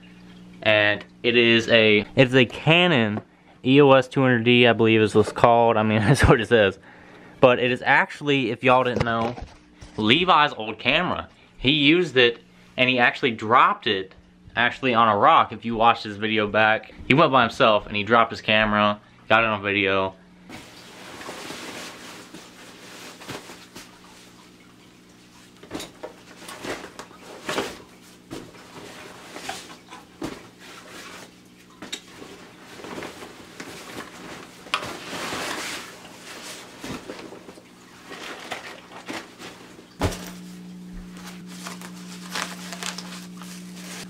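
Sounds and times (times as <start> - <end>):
steady low hum: 0.0 - 44.0
fabric rustling: 20.5 - 24.4, 25.7 - 44.0.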